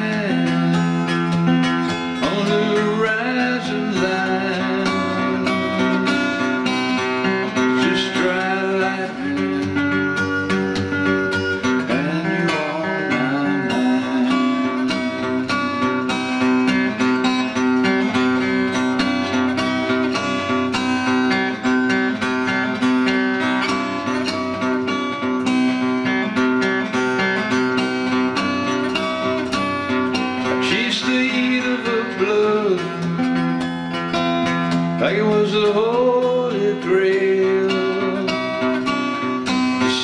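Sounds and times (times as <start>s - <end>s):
acoustic guitar strumming chords: 0.0s - 40.0s.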